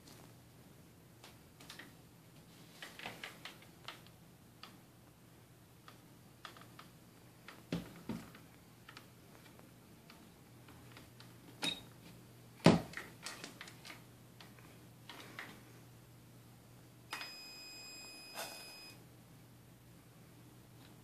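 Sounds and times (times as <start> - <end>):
high electronic beep: 17.2 - 19.0.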